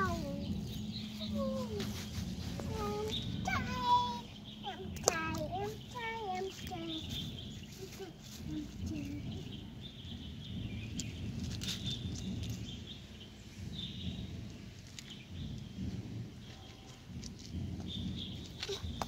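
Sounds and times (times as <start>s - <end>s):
low rumble: 0.0s - 19.0s
small birds chirping: 0.0s - 19.0s.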